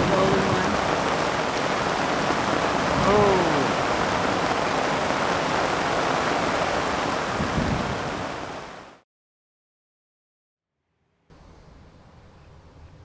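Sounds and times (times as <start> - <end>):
heavy rain on tent fabric: 0.0 - 9.0.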